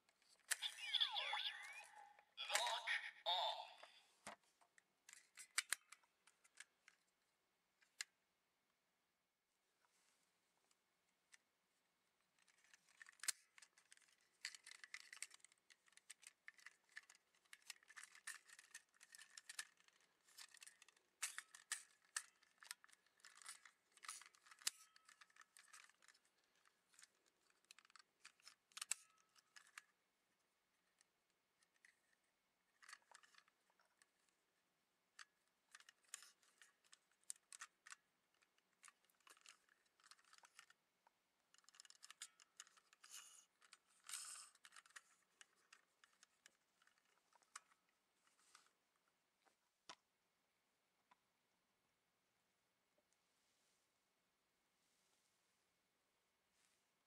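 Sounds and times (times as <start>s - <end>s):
plastic toy parts clicking: 5.1s - 7.0s, 12.4s - 30.0s, 32.7s - 34.1s, 35.2s - 40.8s, 41.4s - 47.8s.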